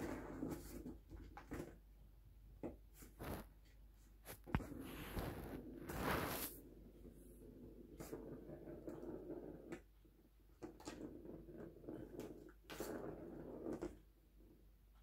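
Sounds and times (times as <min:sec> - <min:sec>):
plastic ball rolling on track: 0:04.5 - 0:14.6.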